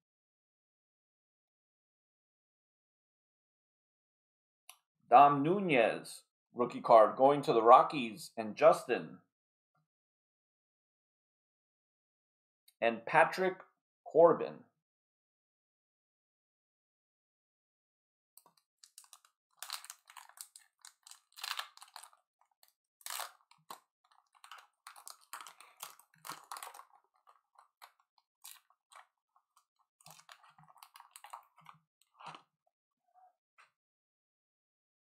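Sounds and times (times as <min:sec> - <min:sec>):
plastic wrapper crinkling and tearing: 0:18.4 - 0:32.4.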